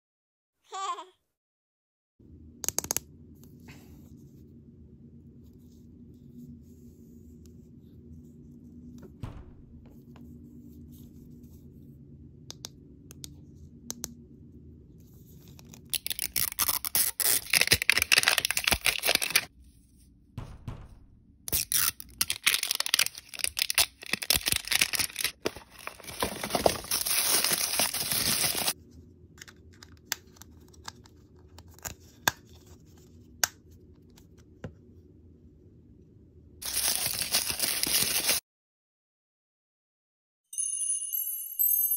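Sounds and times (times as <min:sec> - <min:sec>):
plastic wrapping tearing: 0:15.8 - 0:19.5, 0:21.5 - 0:28.8, 0:36.6 - 0:38.4.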